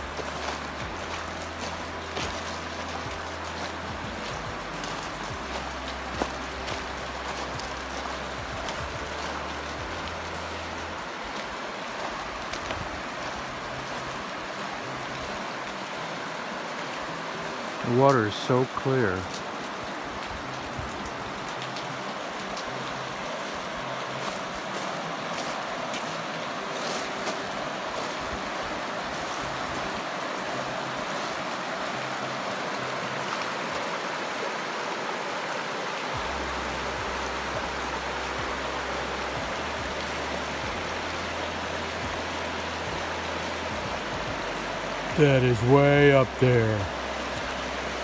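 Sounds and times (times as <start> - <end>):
creek running over stones: 0.0 - 48.0.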